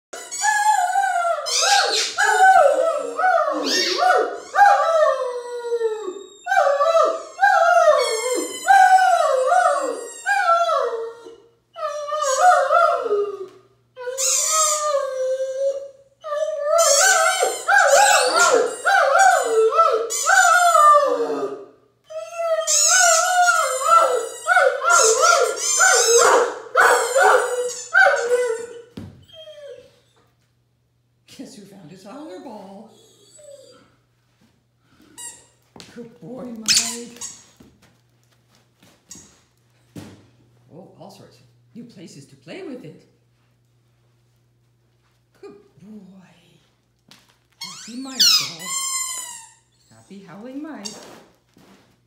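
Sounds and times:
squeaky toy ball: 0.2 - 0.7, 1.5 - 2.5, 3.6 - 4.6, 8.0 - 9.0, 10.0 - 10.3, 14.0 - 15.0, 16.7 - 18.8, 20.1 - 20.6, 22.7 - 26.2, 27.0 - 28.3, 36.6 - 37.6, 47.6 - 50.0
dog howling: 0.2 - 28.8.

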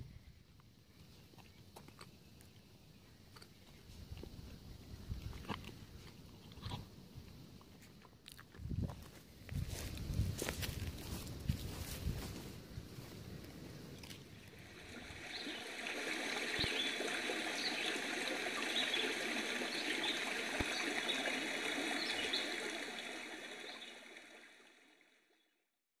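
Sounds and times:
stream water rushing: 14.1 - 25.1.

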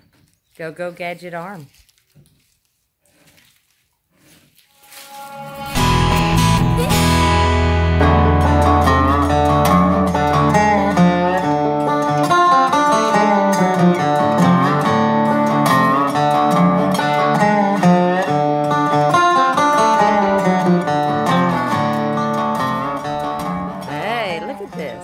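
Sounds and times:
plucked string melody: 4.9 - 25.0
deep held bass note: 5.8 - 11.0.

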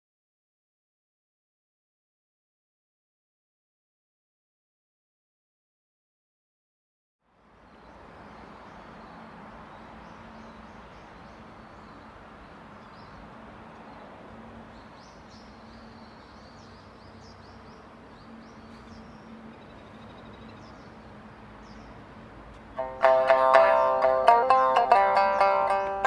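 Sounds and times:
steady outdoor hiss: 7.2 - 26.0
small birds chirping: 7.4 - 26.0.

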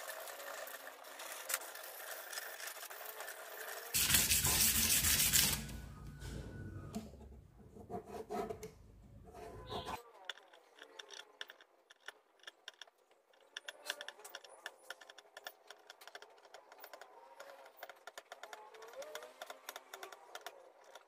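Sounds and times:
pen and ruler scratching metal: 3.6 - 5.7, 7.6 - 21.0.

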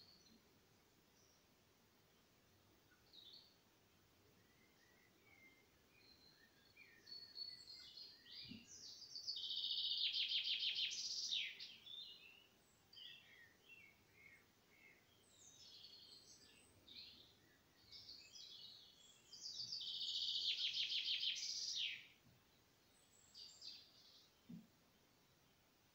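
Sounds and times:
songbirds singing: 0.0 - 25.9
short bird chirps: 18.0 - 22.1.

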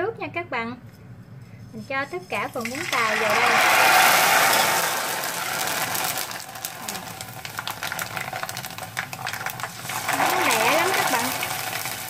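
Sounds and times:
noodles sizzling in hot oil: 2.0 - 12.0
oil crackling and popping: 2.4 - 12.0.

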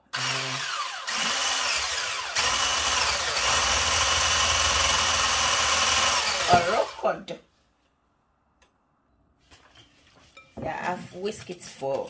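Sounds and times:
electric hand whisk whining: 0.0 - 7.1.

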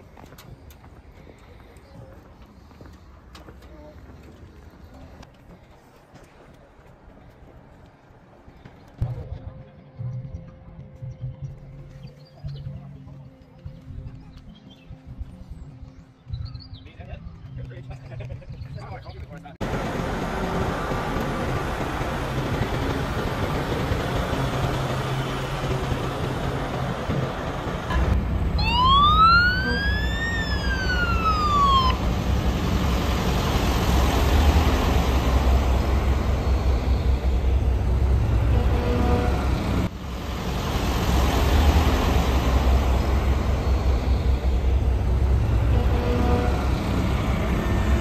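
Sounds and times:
truck diesel engines rumbling: 19.6 - 48.0
siren wail: 28.0 - 32.6.

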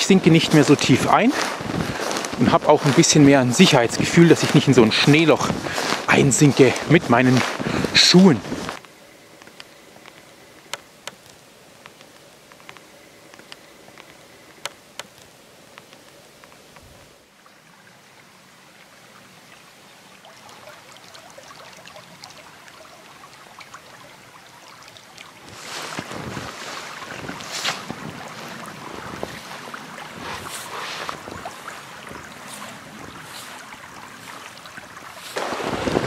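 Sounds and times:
stream trickling and babbling: 0.0 - 36.0
sharp clicks: 8.8 - 16.9.

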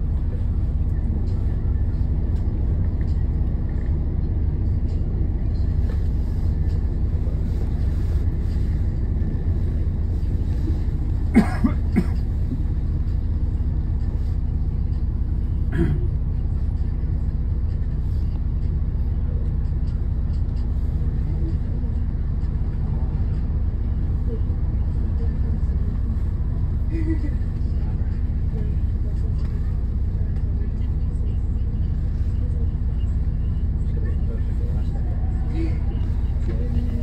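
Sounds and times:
bus engine humming: 0.0 - 37.0
person coughing: 11.3 - 12.3, 15.7 - 16.1.

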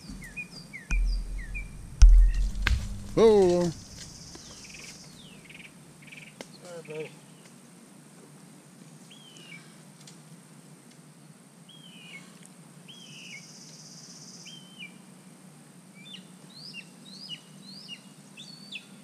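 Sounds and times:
low outdoor hum: 0.0 - 6.1
high thin buzz: 0.9 - 4.3.

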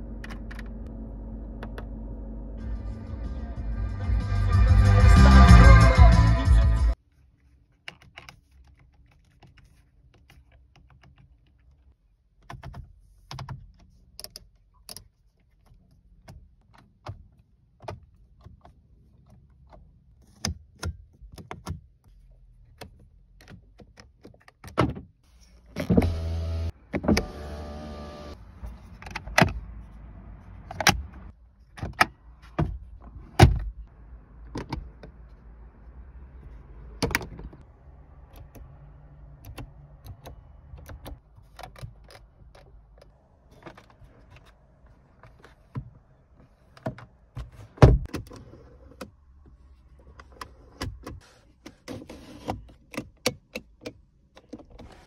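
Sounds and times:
electric motor running: 26.0 - 28.4.

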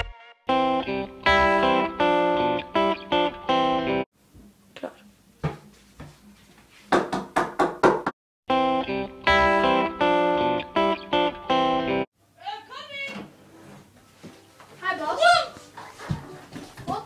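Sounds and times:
guitar music: 0.5 - 4.0, 8.5 - 12.1
knocks on a door: 6.9 - 8.1.

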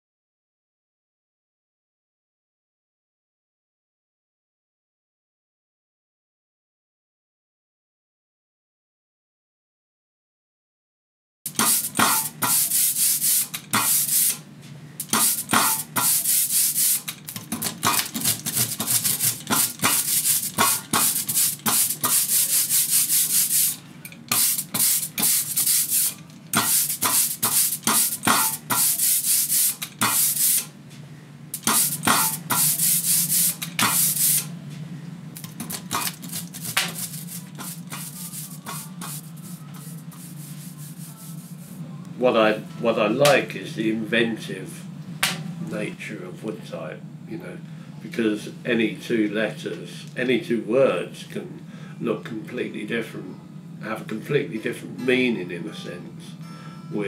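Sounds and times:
fast dry rubbing strokes: 18.2 - 23.8, 24.4 - 28.2, 36.1 - 41.8.

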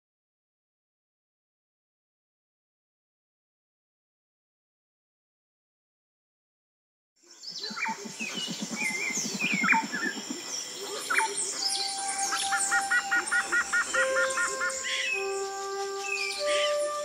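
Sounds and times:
birds chirping and whistling: 7.3 - 17.0
low rapid pulsing: 7.6 - 16.0.

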